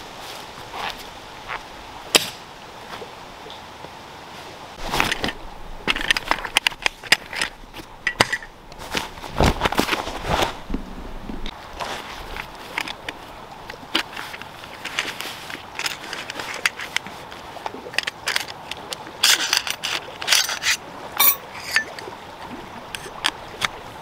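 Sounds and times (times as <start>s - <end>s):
canvas rustling and flapping: 8.8s - 13.0s.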